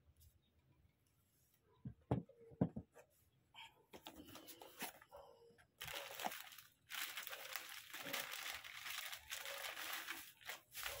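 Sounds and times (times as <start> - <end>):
plastic wrapping crinkling: 5.8 - 11.0.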